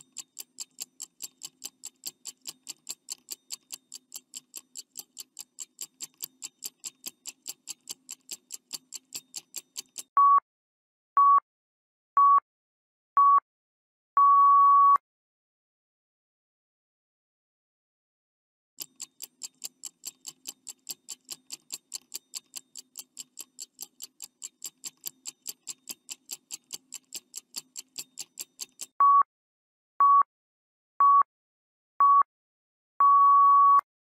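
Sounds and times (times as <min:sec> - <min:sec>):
stopwatch ticking: 0:00.0 - 0:10.2, 0:18.8 - 0:29.0
short beeps: 0:14.2 - 0:15.0, 0:29.0 - 0:29.3, 0:33.0 - 0:33.9
long final beep: 0:33.0 - 0:33.8.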